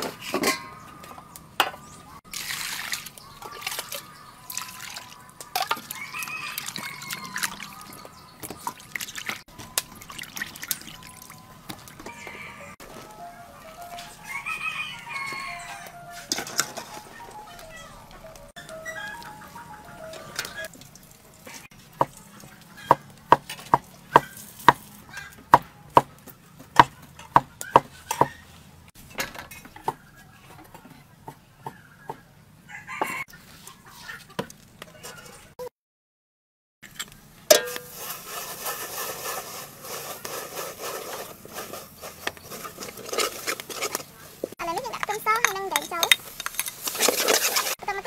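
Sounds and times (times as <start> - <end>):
metal ladle knocking on pot: 37.5 - 37.9
hot oil sizzling: 37.5 - 42.0
ladle scraping paste in pot: 37.5 - 44.6, 45.4 - 47.8.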